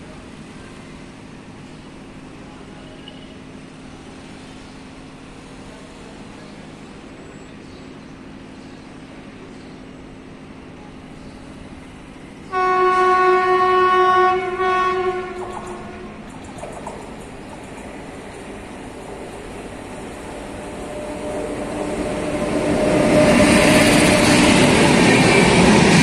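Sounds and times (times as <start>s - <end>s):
locomotive horn blast: 12.5s - 16.3s.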